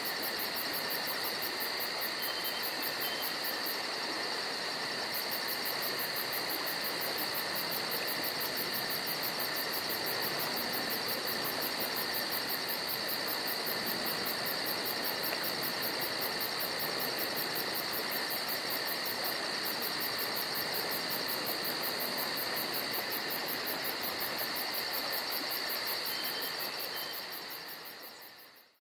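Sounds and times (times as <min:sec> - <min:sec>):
insect trills: 0:00.0 - 0:28.8.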